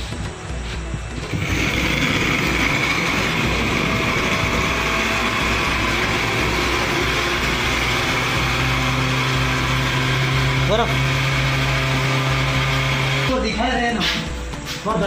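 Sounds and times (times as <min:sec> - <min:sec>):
electric blender running: 0:01.1 - 0:13.6.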